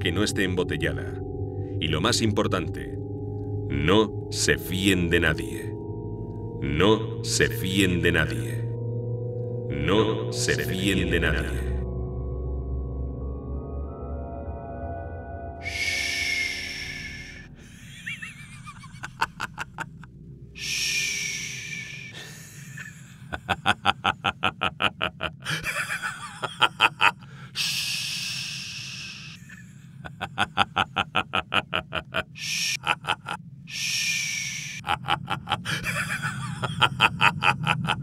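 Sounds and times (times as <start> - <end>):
low music drone: 0.0 - 23.4, 33.7 - 38.0
man laughing manically: 17.6 - 20.1, 22.2 - 27.3, 29.4 - 33.4, 34.8 - 38.0.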